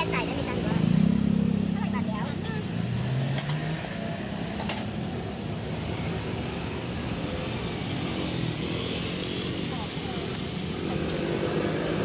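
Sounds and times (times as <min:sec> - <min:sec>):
gas burner rushing: 0:03.3 - 0:12.0.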